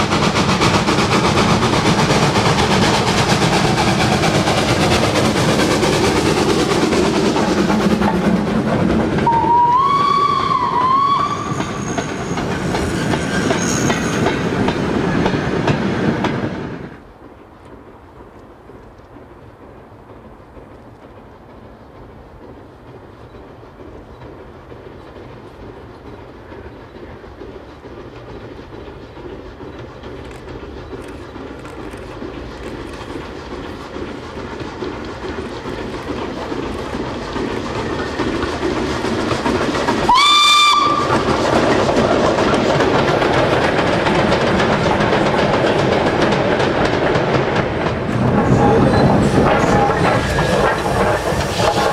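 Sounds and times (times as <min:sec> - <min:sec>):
steam locomotive exhaust: 0:00.0 - 0:17.1, 0:21.3 - 0:51.9
train wagons clattering past: 0:00.0 - 0:51.9
steam whistle blast: 0:09.2 - 0:12.2, 0:40.1 - 0:41.2.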